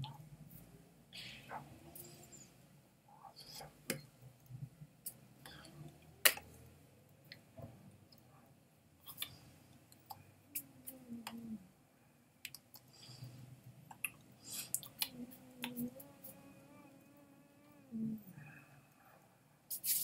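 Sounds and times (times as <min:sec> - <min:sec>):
man humming: 0:15.1 - 0:18.3.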